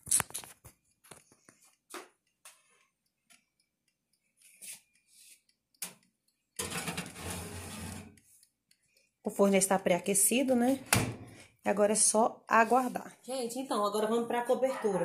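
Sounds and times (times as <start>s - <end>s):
cake pan and kitchen things clicking: 5.8s - 8.2s
scraping rattling noise: 6.6s - 8.2s.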